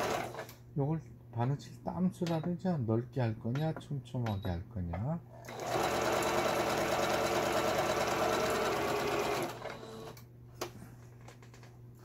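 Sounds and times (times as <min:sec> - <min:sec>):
sewing machine running: 0:00.0 - 0:00.5, 0:05.5 - 0:10.2.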